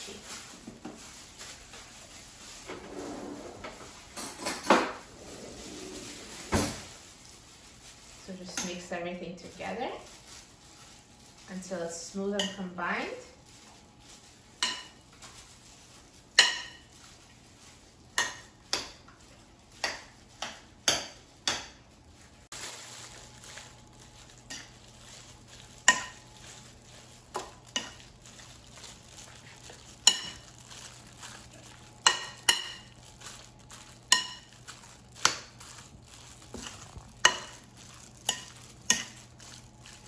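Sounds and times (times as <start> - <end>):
fork stirring meat in bowl: 24.3 - 40.0.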